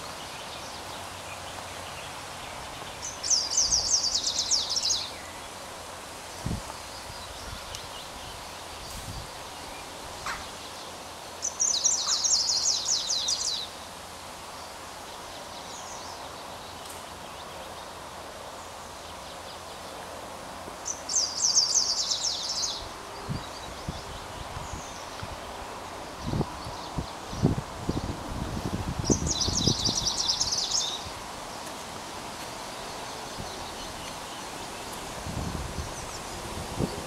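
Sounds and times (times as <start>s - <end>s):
warbler singing: 0.0s - 5.7s, 6.3s - 13.9s, 20.8s - 31.7s, 32.4s - 37.0s
steady background noise: 0.0s - 37.0s.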